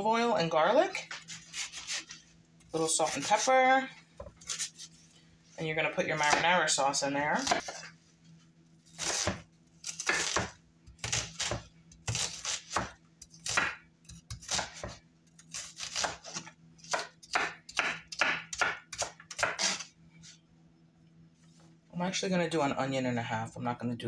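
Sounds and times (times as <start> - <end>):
knife chopping onion on board: 6.2 - 6.5, 7.4 - 7.9, 8.9 - 19.8.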